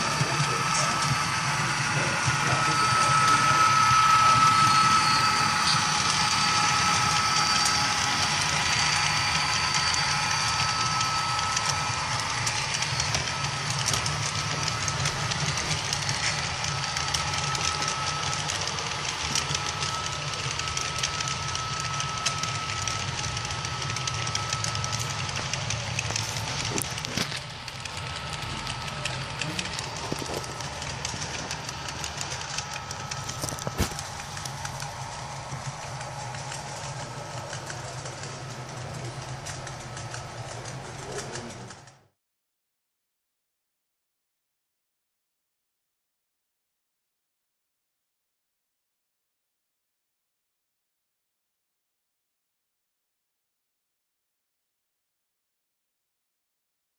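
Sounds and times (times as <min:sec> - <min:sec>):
model train motors whining: 0:00.0 - 0:42.1
model train wheels clicking: 0:00.0 - 0:42.1.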